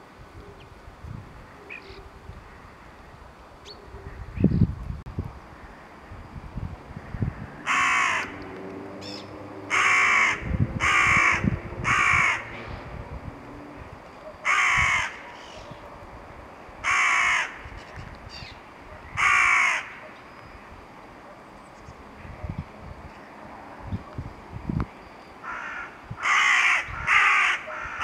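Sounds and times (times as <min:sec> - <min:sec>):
crow cawing: 0:07.6 - 0:08.4, 0:09.7 - 0:12.6, 0:14.4 - 0:15.5, 0:16.8 - 0:17.7, 0:19.1 - 0:20.0, 0:25.4 - 0:28.0.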